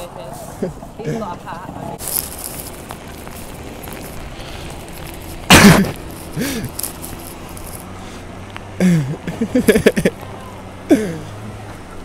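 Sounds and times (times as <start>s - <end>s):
person coughing: 5.5s - 6.7s.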